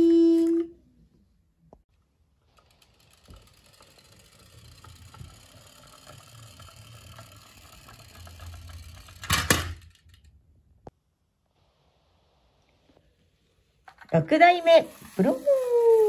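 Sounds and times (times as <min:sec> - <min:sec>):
toy wheels rattling on wood: 0:02.4 - 0:10.4, 0:13.8 - 0:16.0
toy truck clacking on floor: 0:02.5 - 0:10.4.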